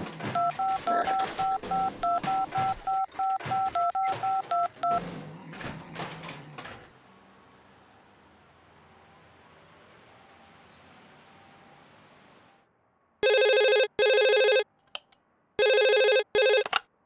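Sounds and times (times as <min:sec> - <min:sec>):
phone keypad touch-tone beeps: 0:00.4 - 0:05.0, 0:13.2 - 0:14.6.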